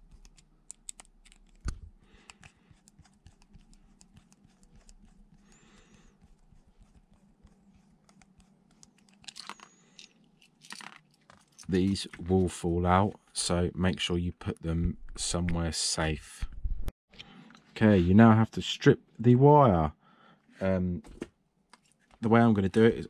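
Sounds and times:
plastic handling noises: 8.8 - 12.5.

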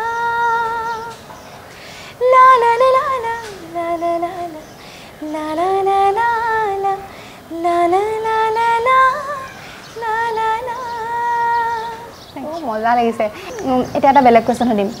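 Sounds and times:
woman singing unaccompanied: 0.0 - 15.0
singer breathing: 1.5 - 2.2, 4.7 - 5.2, 7.0 - 7.5, 13.3 - 13.6.

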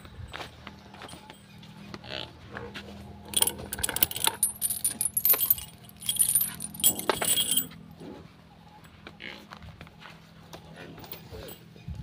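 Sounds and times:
metal chain rattling: 3.3 - 7.7.

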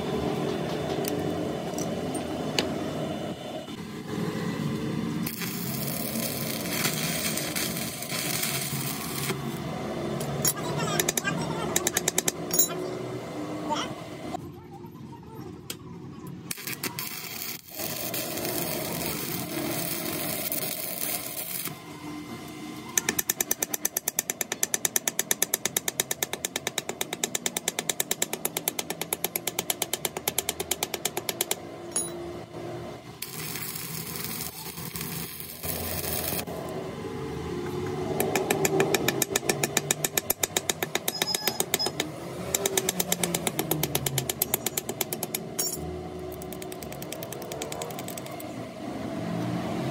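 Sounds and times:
noisy workshop background: 0.0 - 49.9
rapid mechanical knocking: 38.2 - 45.5.

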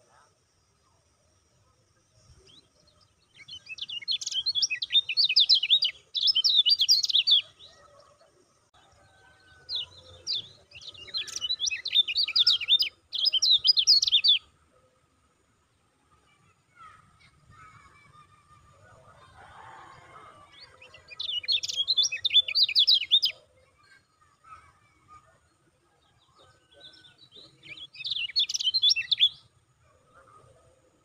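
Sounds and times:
bird twittering song: 2.1 - 14.8, 19.8 - 25.4, 26.0 - 30.7.

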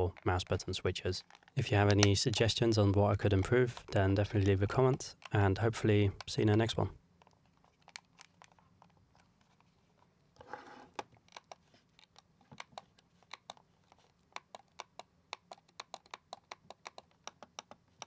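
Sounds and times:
mouse scraping on desk: 10.4 - 11.0.

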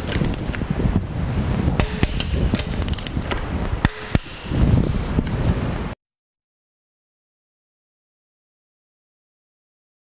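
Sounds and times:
wrench ratchet clicks: 1.8 - 4.6.

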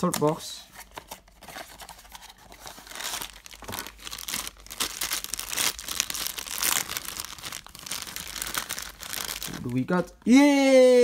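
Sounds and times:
foil bag crinkling: 2.6 - 9.9.

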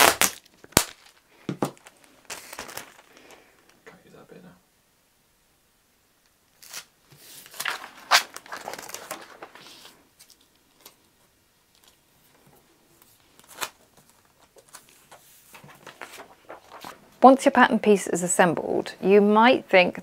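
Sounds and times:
paper crackles: 0.0 - 3.5, 6.6 - 11.0, 12.9 - 17.1
paper rustling and sliding: 6.6 - 10.0, 13.0 - 17.1.

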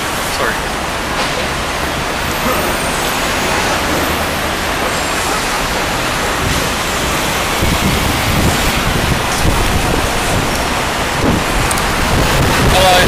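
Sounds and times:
road traffic: 0.0 - 13.0
gusty low rumbles: 2.0 - 13.0
wind noise on microphone: 5.6 - 13.0.

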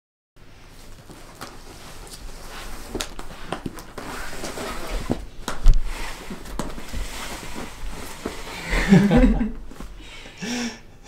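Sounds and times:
footsteps on wooden floor: 2.3 - 10.0.

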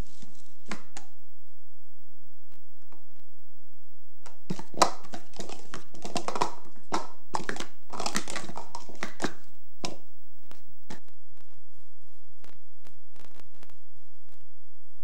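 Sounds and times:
plastic cups clattering: 0.0 - 1.1, 4.3 - 10.1.

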